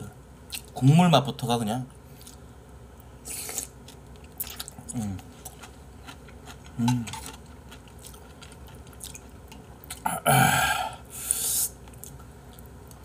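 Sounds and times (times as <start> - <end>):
person blowing on noodles: 3.2 - 3.7, 10.4 - 11.8
person burping: 10.0 - 11.0.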